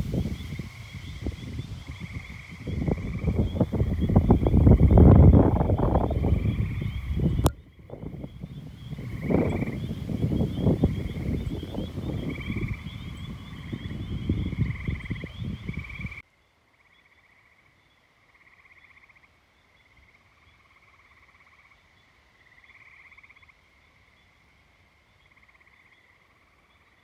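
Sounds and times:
wind buffeting microphone: 0.0s - 16.2s
frogs trilling: 0.0s - 27.0s.

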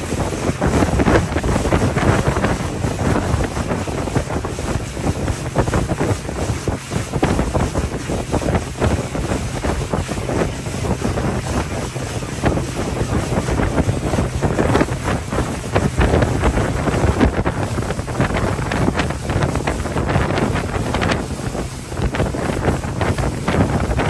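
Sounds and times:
boat motor humming: 0.0s - 24.0s
water washing along hull: 0.0s - 24.0s
wind buffeting microphone: 0.0s - 24.0s.

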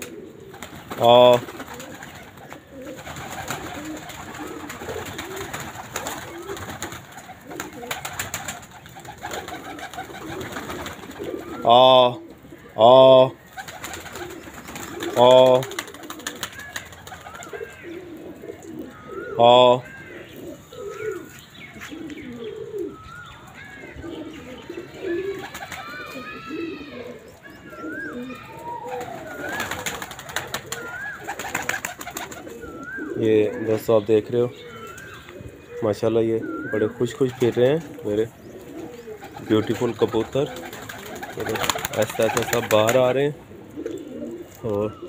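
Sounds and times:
pigeons cooing: 0.0s - 45.0s
wing flaps: 0.4s - 11.6s, 13.5s - 17.6s, 28.9s - 32.6s, 38.7s - 43.0s.

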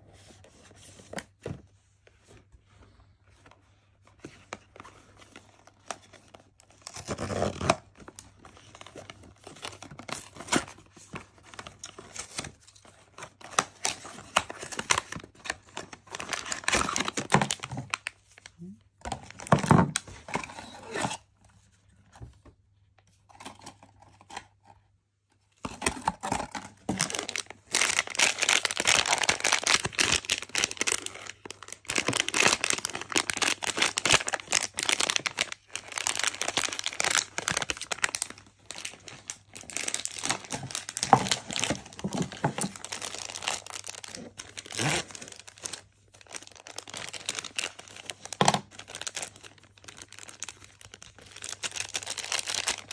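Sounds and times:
foil pouch crinkling and tearing: 13.4s - 18.2s, 26.9s - 52.9s.

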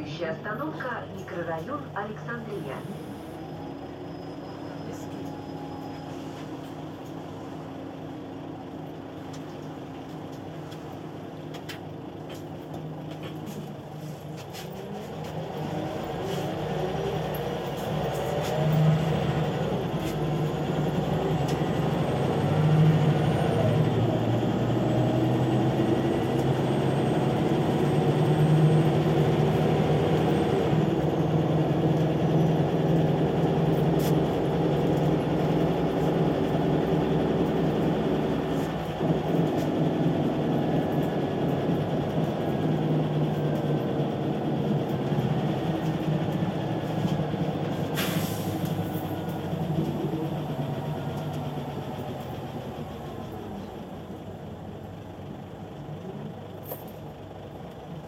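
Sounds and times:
bus engine revving: 2.2s - 56.5s.

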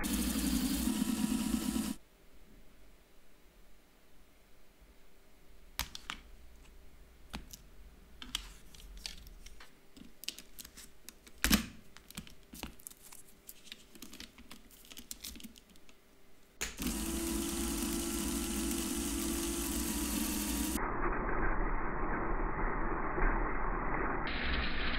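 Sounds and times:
plastic parts clicking and clattering: 8.2s - 16.0s.

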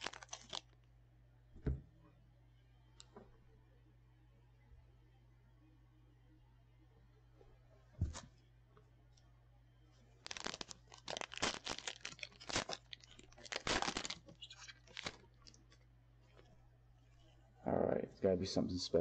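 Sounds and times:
foil wrapper crackling and ripping: 0.0s - 0.8s, 10.2s - 15.8s.

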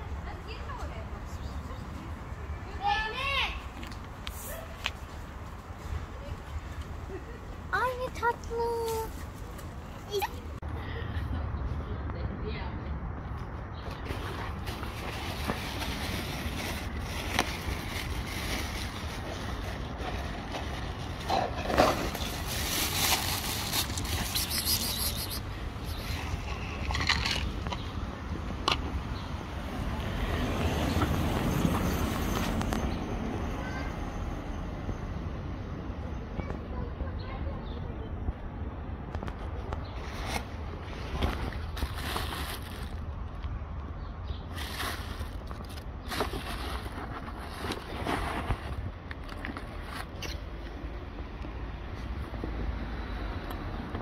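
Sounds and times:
kitten crunching dry kibble: 22.0s - 27.8s.

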